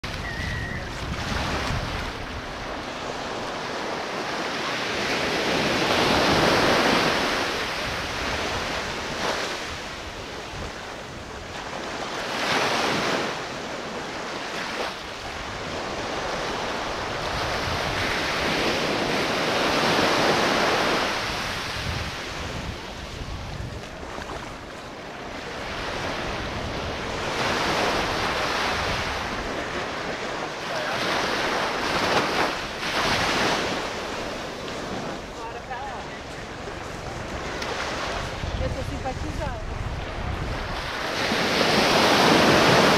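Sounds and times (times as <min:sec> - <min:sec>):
ocean surf breaking on beach: 0:00.0 - 0:42.9
wind rumbling on microphone: 0:00.0 - 0:42.9.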